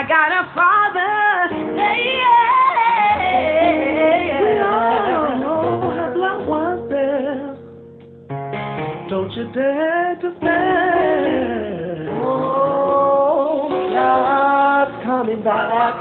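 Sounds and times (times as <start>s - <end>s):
musical accompaniment: 1.5s - 16.0s.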